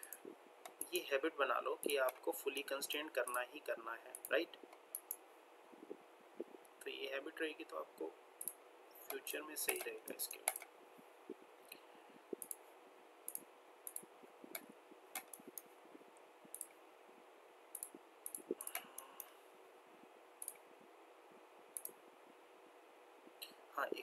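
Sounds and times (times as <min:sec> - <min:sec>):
faint steady hiss: 0:00.0 - 0:24.0
computer mouse clicking: 0:04.1 - 0:05.2, 0:08.4 - 0:10.7, 0:11.7 - 0:12.6, 0:13.3 - 0:15.7, 0:16.5 - 0:16.8, 0:17.7 - 0:19.4, 0:20.4 - 0:20.6, 0:21.8 - 0:22.0.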